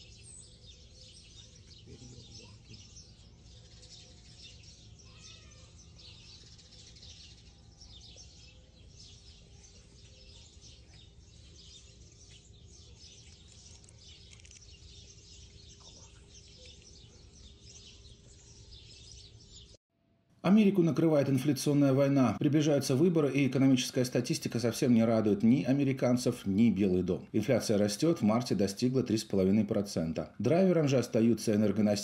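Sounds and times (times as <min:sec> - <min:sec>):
small birds chirping: 0:00.0 - 0:19.8.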